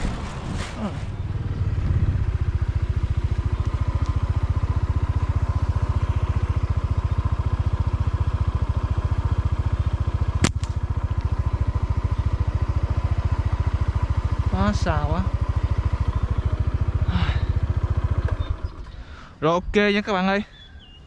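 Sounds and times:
small motorcycle engine idling: 0:00.0 - 0:21.0
slingshot rubber bands snapping: 0:10.4 - 0:10.8.

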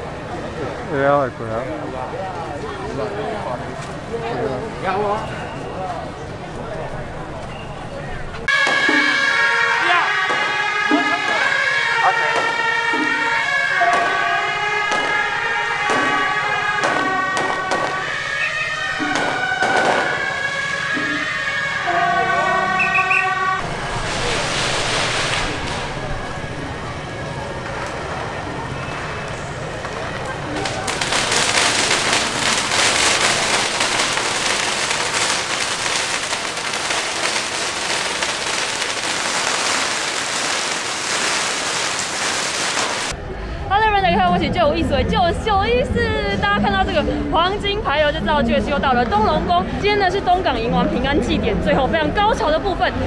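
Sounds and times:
firecrackers crackling: 0:08.4 - 0:21.9, 0:22.8 - 0:43.2
reedy wind instruments: 0:08.5 - 0:23.8.

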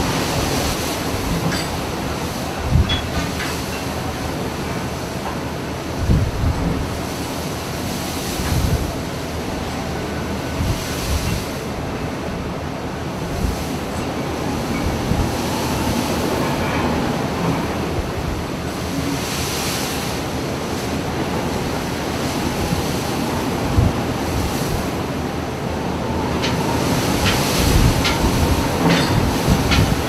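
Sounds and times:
wind buffeting microphone: 0:00.0 - 0:03.4, 0:05.9 - 0:07.1, 0:08.4 - 0:09.1, 0:13.0 - 0:19.3, 0:21.0 - 0:30.0
heavy seas breaking against ship: 0:00.0 - 0:30.0.

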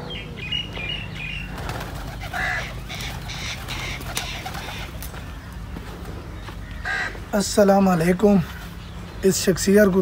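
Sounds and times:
crows cawing: 0:02.1 - 0:07.6.

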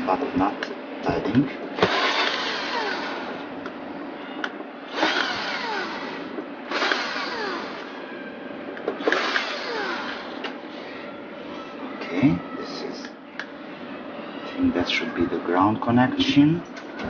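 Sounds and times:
cordless drill driving screws: 0:01.8 - 0:03.3, 0:04.9 - 0:07.9, 0:09.0 - 0:10.3.

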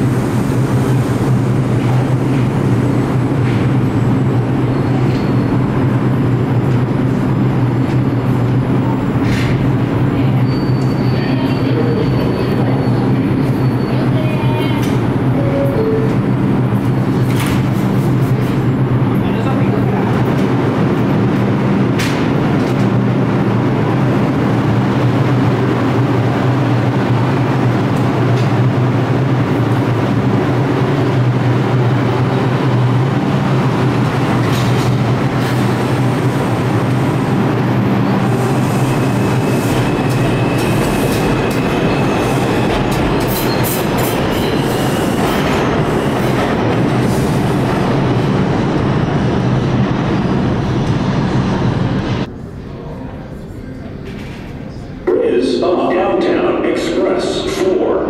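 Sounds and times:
subway train wheels rumbling: 0:00.0 - 0:58.0.

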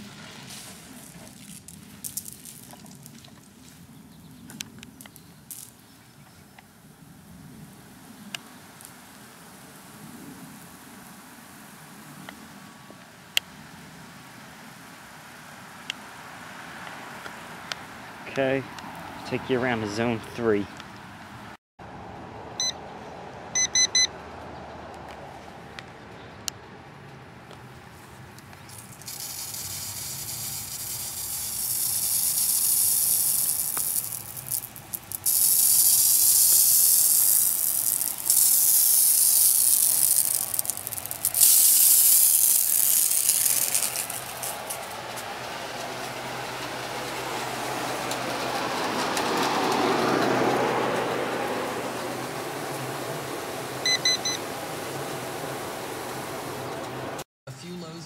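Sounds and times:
sprinkler spraying water: 0:00.0 - 0:03.9, 0:04.8 - 0:05.9, 0:28.6 - 0:56.7.

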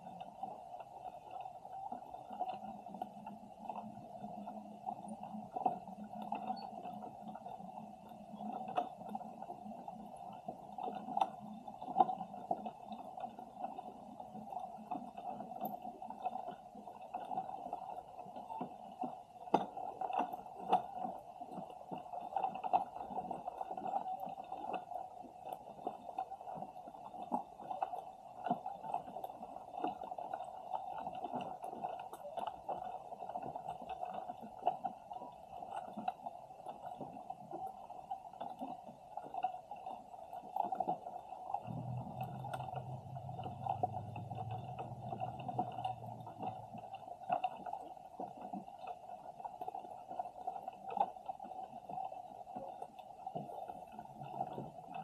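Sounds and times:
clicks and crackles: 0:00.1 - 0:55.0
low hum: 0:41.6 - 0:47.2
muffled underwater rush: 0:41.6 - 0:47.7.

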